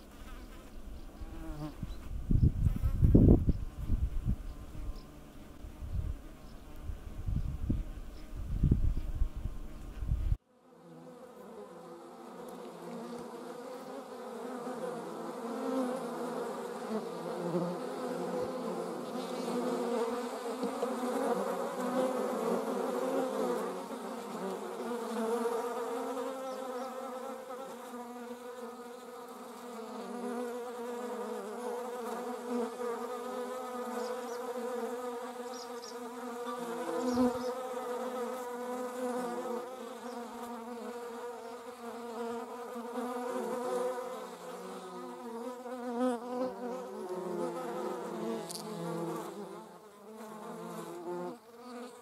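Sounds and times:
wasp buzzing: 0.0 - 52.0.

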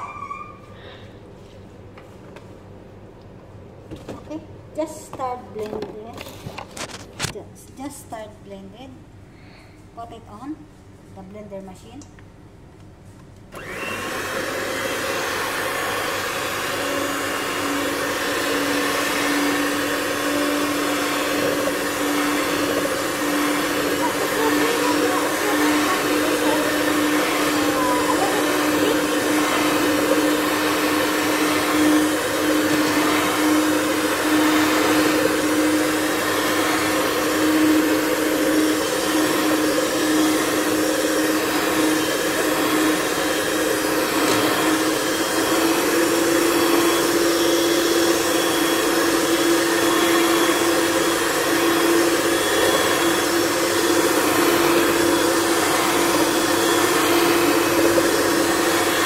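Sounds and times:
electric mixer whipping cream: 13.6 - 59.0.

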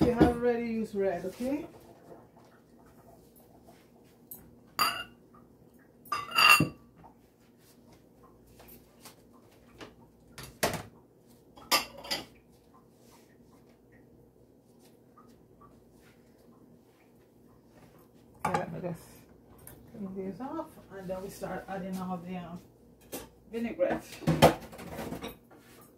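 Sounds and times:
metal utensils clinking on dishes: 6.0 - 6.8, 11.6 - 12.4.

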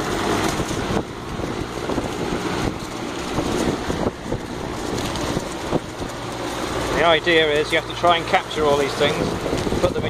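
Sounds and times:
machine-made wind blowing: 0.0 - 10.0
fabric fluttering and rattling: 0.2 - 10.0.

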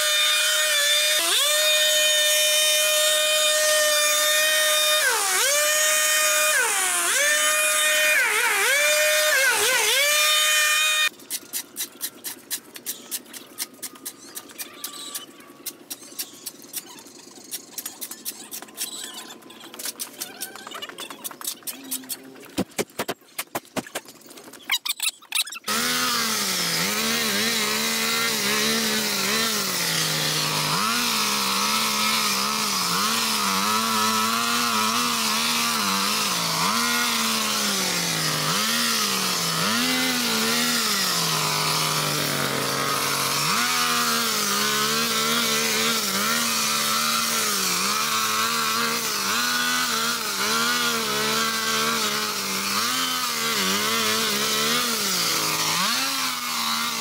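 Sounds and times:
petrol power tool engine revving: 0.0 - 11.1, 25.7 - 57.0.

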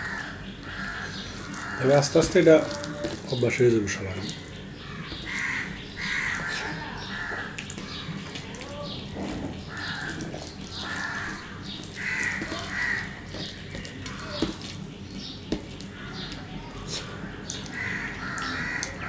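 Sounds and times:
fingers working rice on plate: 0.0 - 19.0
harsh bird calls: 0.0 - 19.0
person chewing: 0.0 - 19.0.

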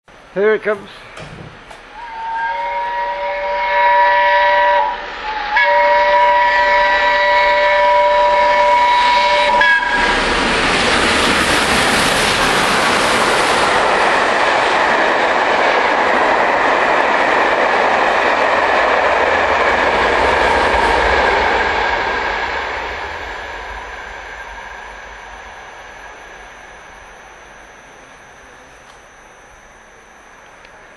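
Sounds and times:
train rushing past: 1.5 - 30.2
steam whistle blasts: 1.9 - 10.3, 20.3 - 30.9.

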